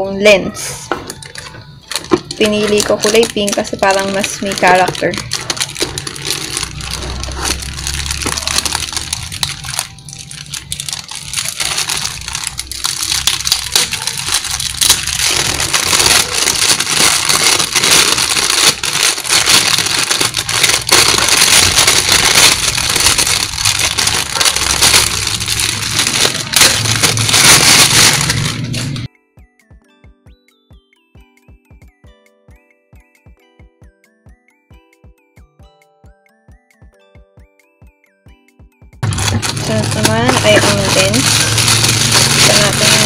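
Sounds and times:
plastic wrapping crinkling: 0:00.9 - 0:29.1, 0:39.0 - 0:43.0.

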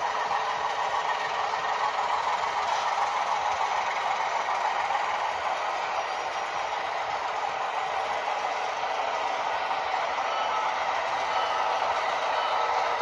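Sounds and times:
model train hum: 0:00.0 - 0:13.0.

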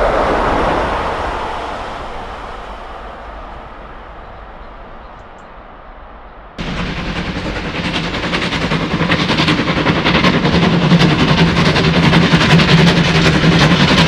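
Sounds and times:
steam locomotive exhaust beats: 0:06.6 - 0:14.0.

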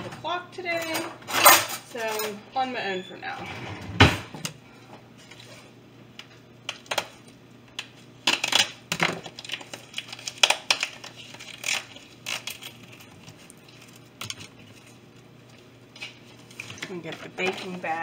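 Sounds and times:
plastic wrap crinkling: 0:05.1 - 0:18.0.

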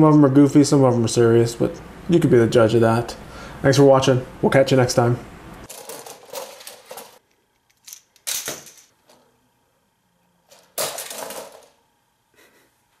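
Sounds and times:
plastic models clattering on wood floor: 0:05.7 - 0:07.2, 0:10.5 - 0:11.8
rattle of plastic parts: 0:05.7 - 0:09.2, 0:10.5 - 0:11.8.

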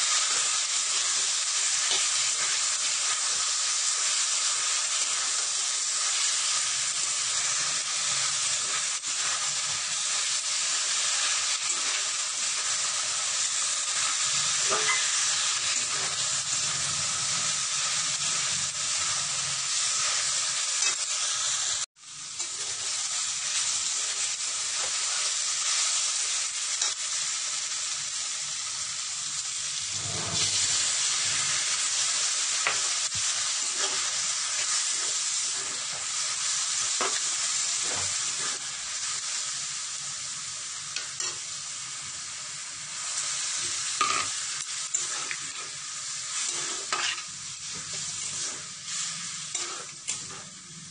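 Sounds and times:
beans sizzling in oil: 0:00.0 - 0:50.9
spatula scraping metal wok: 0:22.4 - 0:23.0, 0:33.5 - 0:36.1, 0:36.9 - 0:38.8, 0:43.6 - 0:50.9.

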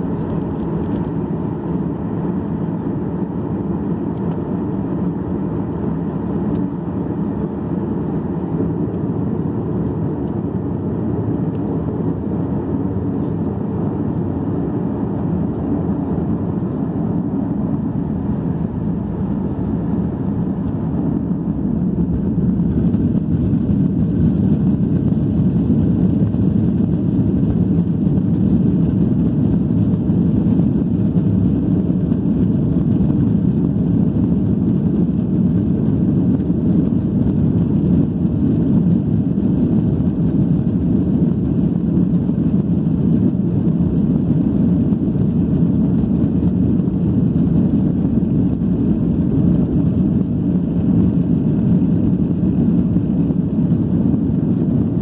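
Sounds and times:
jet engines and airflow rumble: 0:00.0 - 0:55.0.

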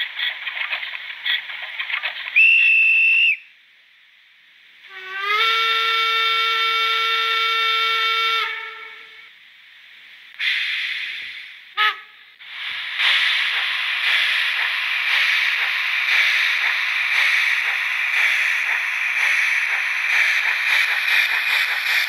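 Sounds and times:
high train whistle: 0:02.4 - 0:03.5, 0:04.8 - 0:09.3, 0:11.7 - 0:12.2
multi-tone steam whistle: 0:02.4 - 0:03.5, 0:04.8 - 0:09.3
steam hiss: 0:04.6 - 0:22.0.

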